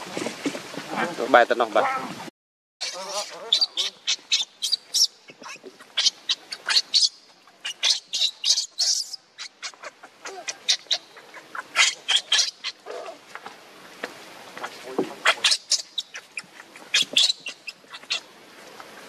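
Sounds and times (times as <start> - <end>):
infant monkey shrill squeals: 2.8 - 12.9, 15.2 - 18.2.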